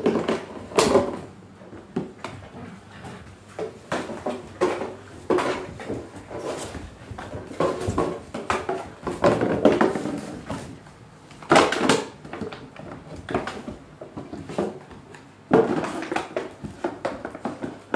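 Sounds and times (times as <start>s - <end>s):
puppies scuffling on floor: 0.0s - 11.1s.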